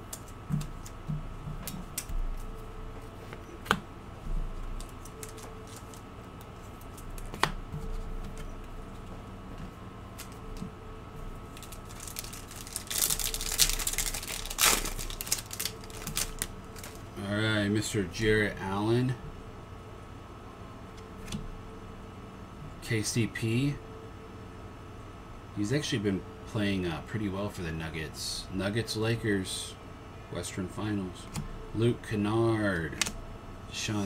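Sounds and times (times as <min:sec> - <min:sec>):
trading cards being handled: 0:00.0 - 0:03.8, 0:04.6 - 0:17.2
foil pack crinkling: 0:04.8 - 0:06.1, 0:11.5 - 0:17.1.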